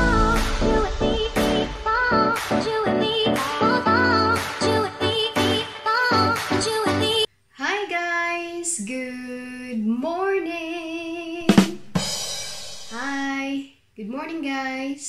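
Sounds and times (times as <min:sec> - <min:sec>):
pop music with drums and singing: 0:00.0 - 0:07.3.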